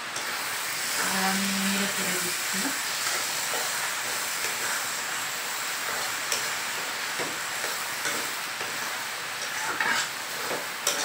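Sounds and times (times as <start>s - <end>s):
food sizzling in oil: 0.0s - 11.0s
metal spatula scraping pan: 5.8s - 11.0s.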